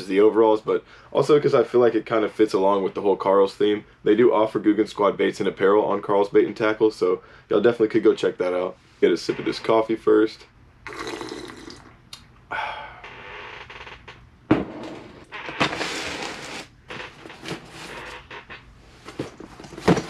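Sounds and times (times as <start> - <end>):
person slurping coffee: 10.9 - 11.9
rustling: 15.0 - 20.0.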